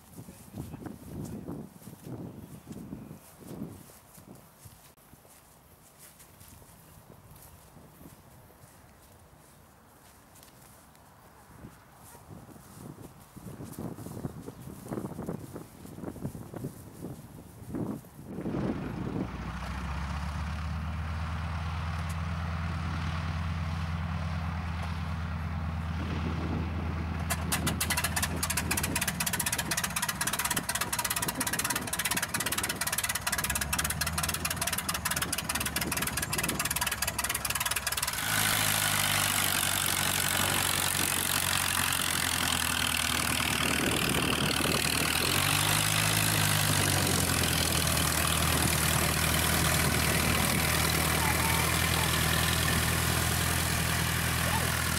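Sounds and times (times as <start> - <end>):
aircraft engine idling drone: 18.4 - 54.9
rapid engine crackles: 18.4 - 54.9.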